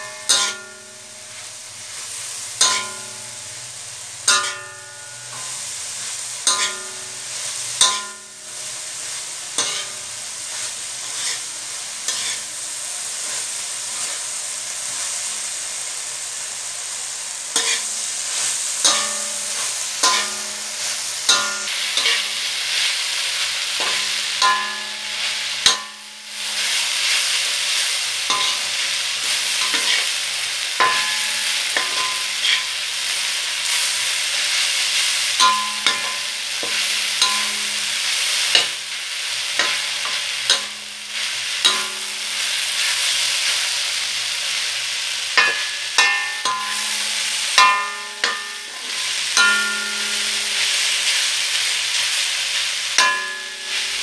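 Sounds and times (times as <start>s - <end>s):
spatula clanking against wok: 0.0s - 1.2s, 2.6s - 8.4s, 9.5s - 10.2s, 12.1s - 12.4s, 17.5s - 22.5s, 23.7s - 26.8s, 28.2s - 32.8s, 35.0s - 42.6s, 45.3s - 51.2s, 52.9s - 54.0s
meat sizzling in a wok: 0.0s - 54.0s
spatula stirring and scraping: 9.0s - 11.5s, 12.1s - 12.5s, 17.6s - 22.8s, 28.3s - 30.1s.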